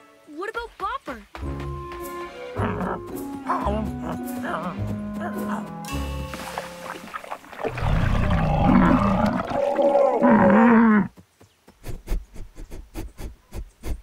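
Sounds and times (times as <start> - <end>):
cartoon dinosaurs moaning calls: 8.3 - 11.1.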